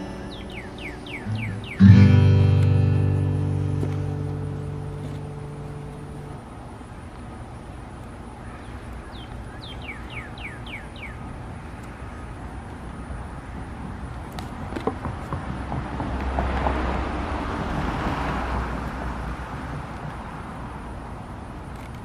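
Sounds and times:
bird whistling: 0.0s - 2.1s, 9.6s - 11.2s
guitar note: 0.0s - 6.4s
distant road traffic rumble: 0.0s - 22.0s.

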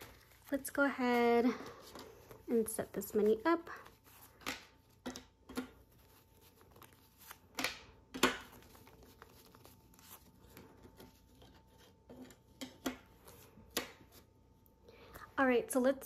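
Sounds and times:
paper banknotes rustling: 0.0s - 12.5s.

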